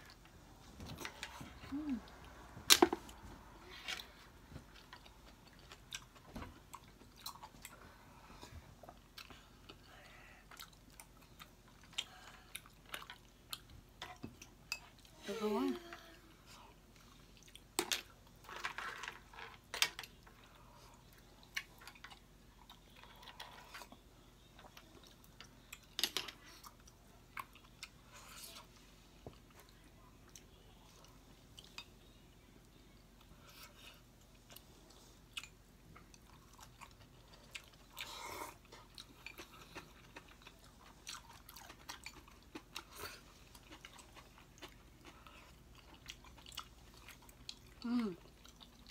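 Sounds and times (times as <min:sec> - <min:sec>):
chewing and crunching food: 0:00.0 - 0:15.2, 0:16.3 - 0:48.9.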